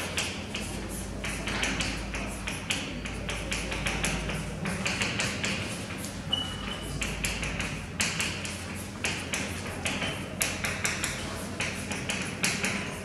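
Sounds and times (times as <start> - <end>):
chalk tapping and scratching on blackboard: 0.0 - 13.0
chalk squeak: 6.3 - 6.8.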